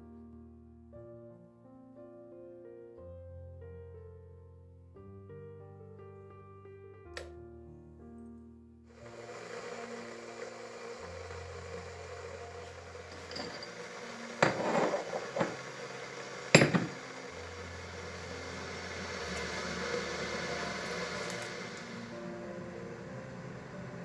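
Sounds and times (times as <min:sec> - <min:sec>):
steady low hiss: 0:07.3 - 0:24.0
ceramic saucer clinking: 0:13.1 - 0:15.6, 0:16.6 - 0:17.0.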